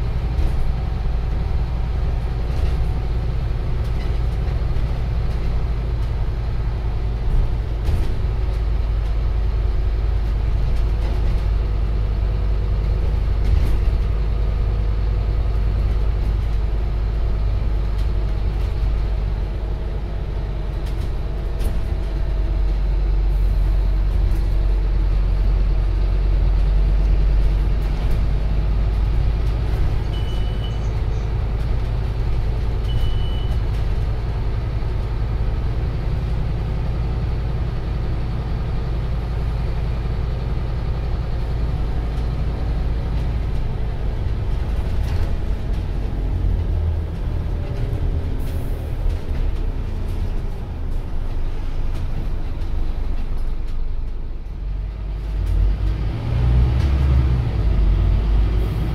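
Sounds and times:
bus diesel engine drone: 0:00.0 - 0:58.9.

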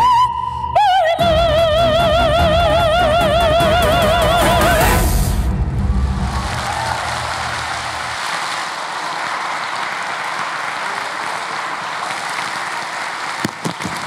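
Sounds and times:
audience applauding: 0:06.2 - 0:14.0.

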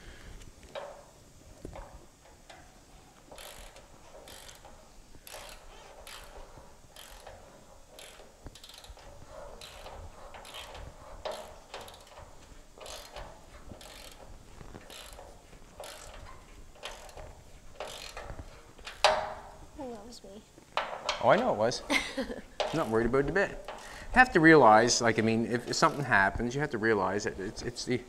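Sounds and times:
ratchet wrench clicking: 0:03.3 - 0:19.4, 0:22.6 - 0:24.0, 0:25.7 - 0:26.3.

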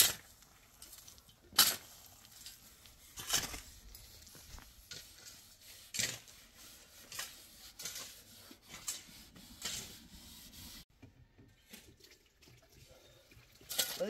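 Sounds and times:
rubbing or scraping sounds: 0:00.0 - 0:10.9.

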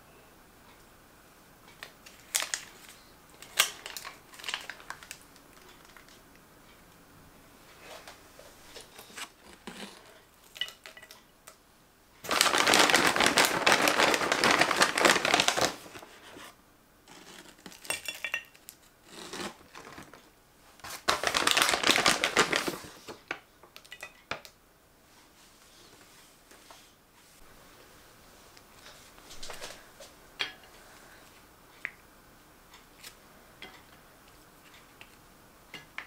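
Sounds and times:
crinkling and crackling: 0:01.7 - 0:07.0, 0:07.7 - 0:11.6, 0:12.2 - 0:24.6.

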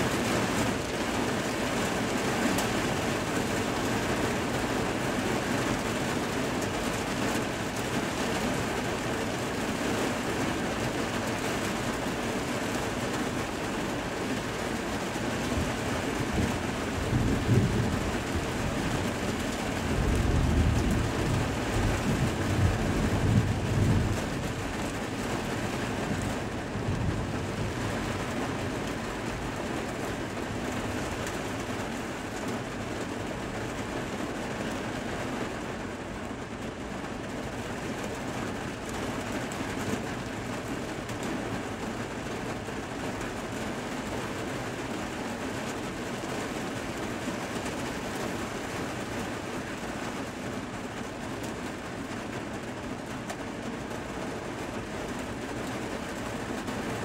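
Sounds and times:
rain falling: 0:00.0 - 0:57.0
thunder rumbling: 0:15.6 - 0:29.4.

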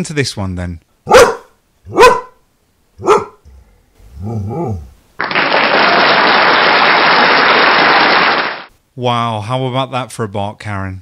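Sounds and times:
dog barking: 0:01.1 - 0:02.4, 0:03.0 - 0:03.4
dog growling rah rah: 0:03.0 - 0:05.0.

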